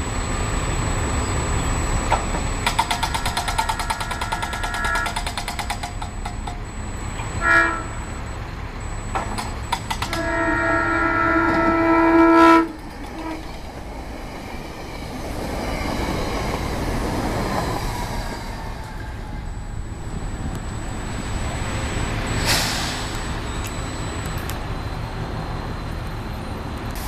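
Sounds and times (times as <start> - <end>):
train rumbling on rails: 0.0 - 27.0
train horn: 4.1 - 5.2, 7.4 - 8.1, 10.1 - 13.6.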